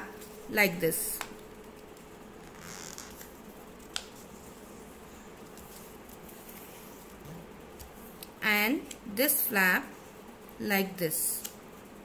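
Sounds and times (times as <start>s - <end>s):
paper rustling being folded: 1.3s - 7.2s.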